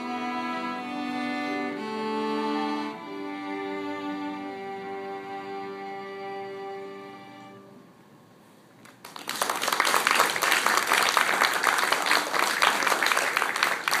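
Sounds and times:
string quartet chord: 0.0s - 8.1s
audience applause: 8.8s - 14.0s.

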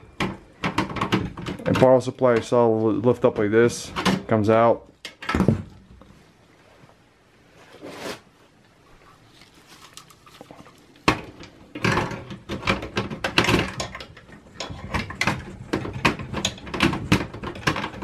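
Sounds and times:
metal clicks knocks and scrapes: 11.0s - 18.0s.

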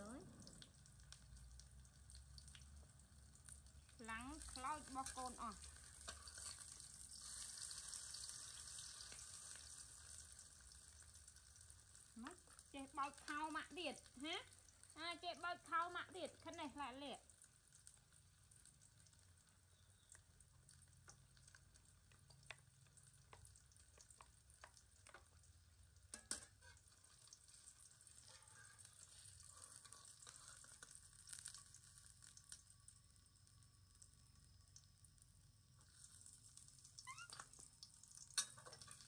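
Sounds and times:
food sizzling in a wok: 0.0s - 39.0s
metal utensils scraping a pan: 4.4s - 8.0s, 26.1s - 31.6s, 38.4s - 39.0s.

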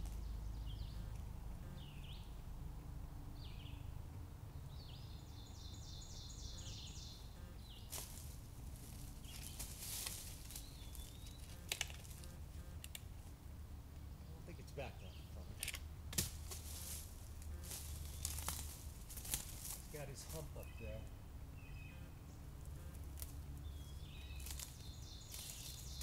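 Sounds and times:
songbirds singing: 0.0s - 26.0s
footsteps in dry leaves: 7.8s - 12.5s, 16.2s - 21.0s, 23.0s - 26.0s
sharp clicks: 15.6s - 16.2s.

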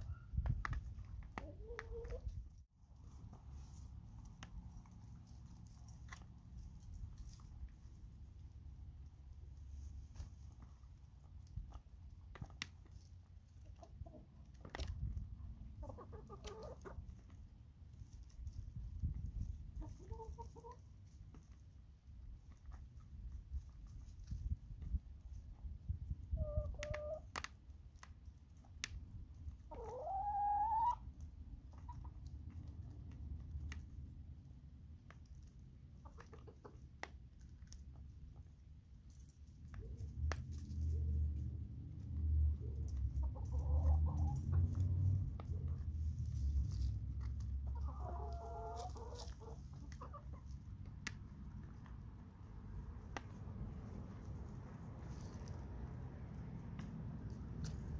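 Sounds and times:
hens clucking: 0.0s - 2.5s, 13.4s - 17.5s, 19.3s - 21.6s, 26.2s - 27.5s, 29.4s - 33.9s, 35.2s - 38.5s, 42.6s - 52.0s
hens pecking on plastic plate: 0.1s - 57.9s.

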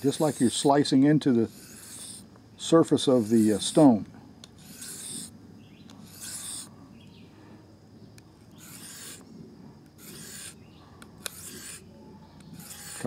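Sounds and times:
knife rasping on whetstone: 0.0s - 0.8s, 1.4s - 2.2s, 3.0s - 3.9s, 4.6s - 5.3s, 6.0s - 6.7s, 8.6s - 9.2s, 10.0s - 10.6s, 11.2s - 13.0s.

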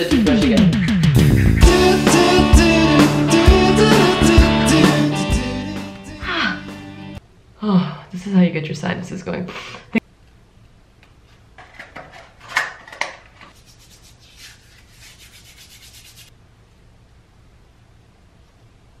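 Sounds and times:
hands rubbing: 13.5s - 16.3s.

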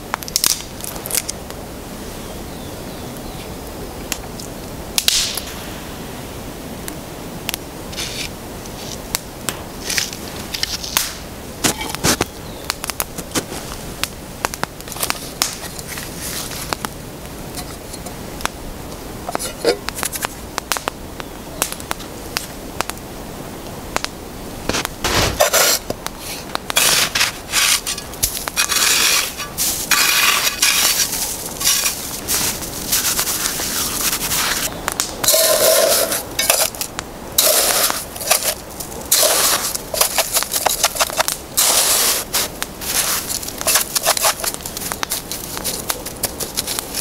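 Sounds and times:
wet snow crunching and scraping: 7.9s - 9.1s, 9.7s - 11.0s, 13.2s - 13.9s, 14.9s - 16.8s, 24.7s - 34.7s, 35.3s - 47.0s.

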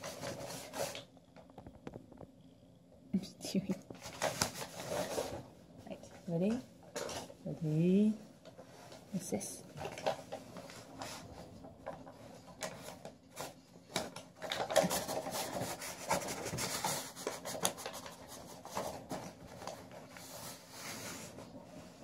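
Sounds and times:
paper scraping and rustling on carpet: 4.0s - 5.4s, 14.5s - 22.0s.

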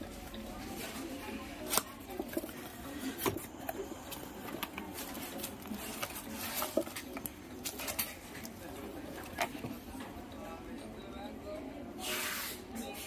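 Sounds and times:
plastic wrapping rustling: 0.6s - 9.7s.

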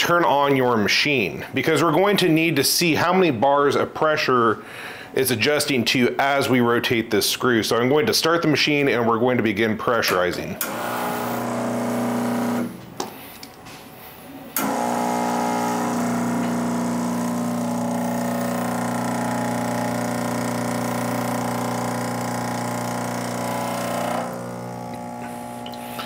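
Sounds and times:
espresso machine pump buzzing: 10.6s - 12.8s, 14.6s - 26.0s
pump switch click: 14.6s - 14.9s.

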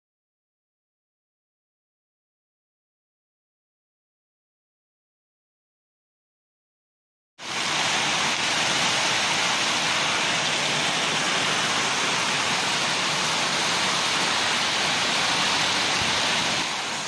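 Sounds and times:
heavy rain pouring: 7.4s - 17.0s.

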